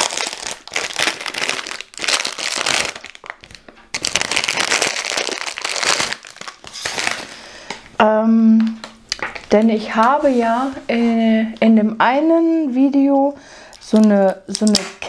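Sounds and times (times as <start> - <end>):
plastic packaging crinkling: 0.0 - 7.4, 13.7 - 15.0.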